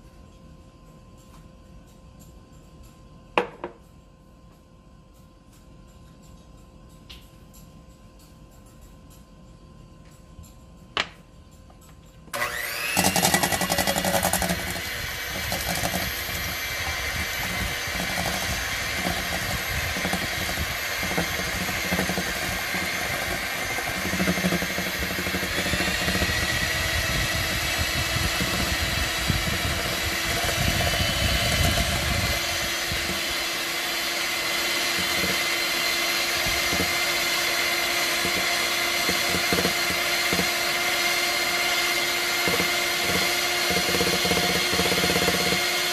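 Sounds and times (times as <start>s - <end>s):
electric hand mixer whipping: 12.3s - 45.9s.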